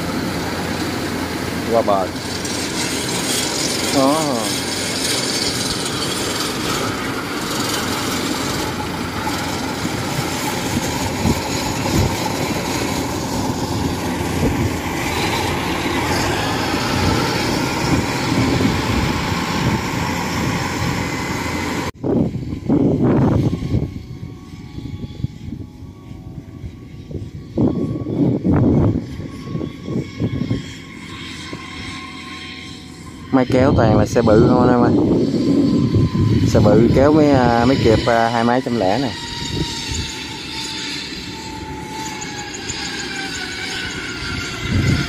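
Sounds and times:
crawler tracks rattling over stubble: 0:00.0 - 0:21.9, 0:26.6 - 0:45.0
cart engine running: 0:00.0 - 0:22.0, 0:29.6 - 0:45.0.

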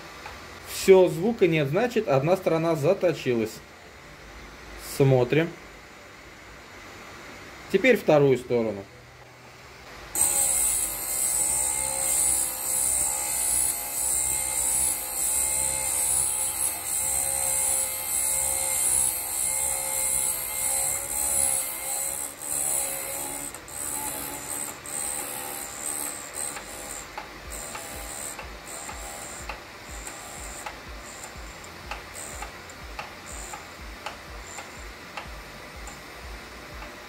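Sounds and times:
drill bit grinding: 0:10.1 - 0:36.1.

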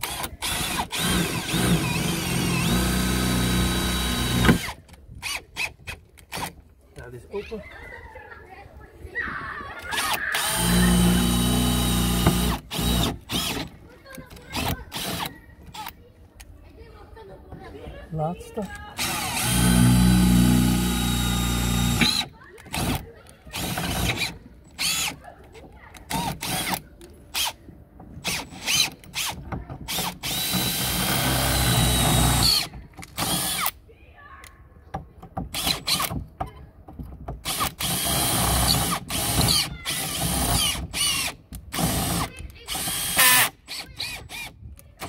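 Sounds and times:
cordless drill whining: 0:00.0 - 0:05.7, 0:09.8 - 0:13.8, 0:14.4 - 0:15.9, 0:19.0 - 0:25.2, 0:26.1 - 0:26.8, 0:28.2 - 0:33.8, 0:35.5 - 0:36.1, 0:37.4 - 0:44.6.

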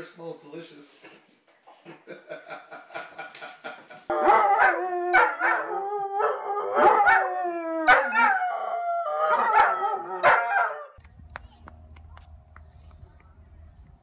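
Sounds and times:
dogs howling: 0:04.1 - 0:11.0.

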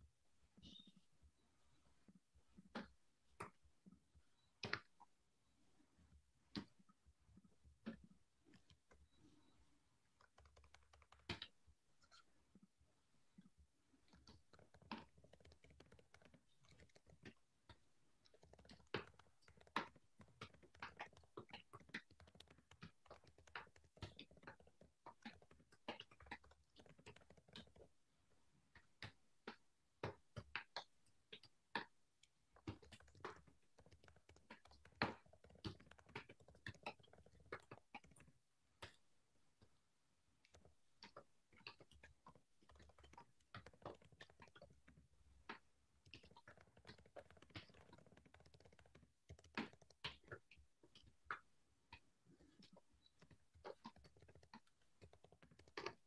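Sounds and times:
computer keyboard typing: 0:10.1 - 0:11.6, 0:14.1 - 0:17.4, 0:18.2 - 0:27.9, 0:32.5 - 0:39.0, 0:40.4 - 0:50.6, 0:52.4 - 0:56.0.

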